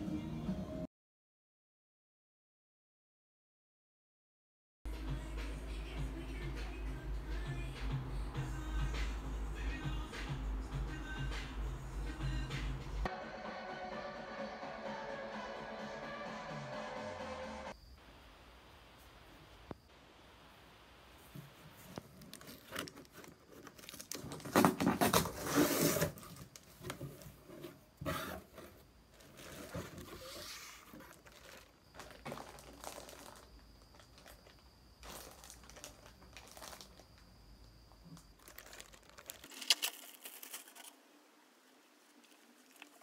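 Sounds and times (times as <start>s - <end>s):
plastic bags crinkling: 21.8s - 26.7s, 29.1s - 37.3s, 38.1s - 41.0s.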